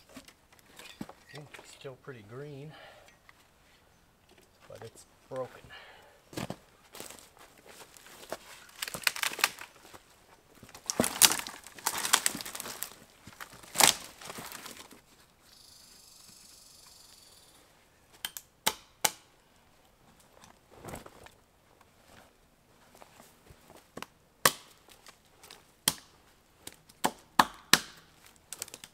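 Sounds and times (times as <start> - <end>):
boots crunching over snow: 6.3 - 15.0
branches crackling and snapping: 6.3 - 15.0, 23.2 - 28.9.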